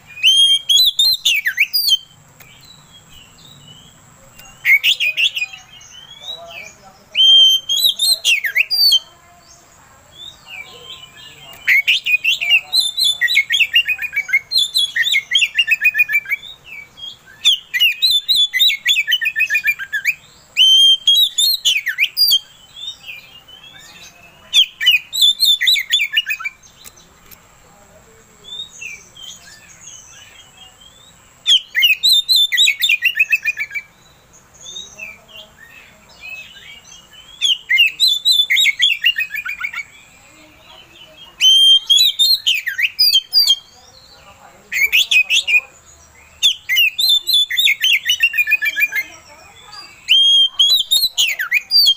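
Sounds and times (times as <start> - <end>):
bird singing whistled trills: 0.0 - 27.1, 28.4 - 51.9.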